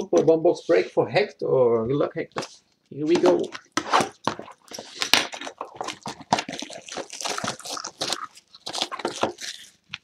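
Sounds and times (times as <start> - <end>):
plastic wrap crinkling: 2.9 - 10.0.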